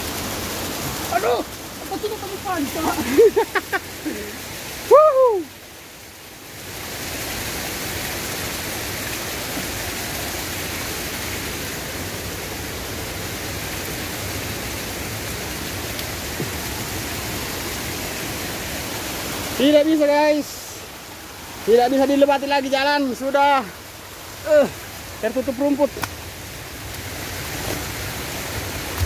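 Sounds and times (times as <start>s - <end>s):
waterfall rushing: 0.0s - 29.0s
person exclaiming: 1.0s - 5.5s, 24.4s - 24.8s.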